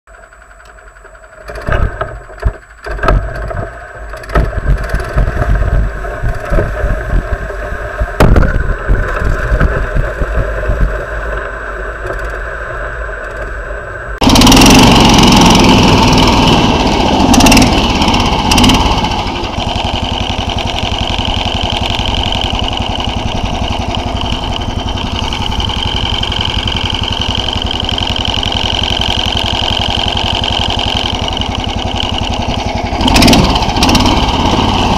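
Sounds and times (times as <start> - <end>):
low rumble: 0.1 - 34.9
small engine running: 0.1 - 34.9
knocks and rattles: 1.4 - 11.0.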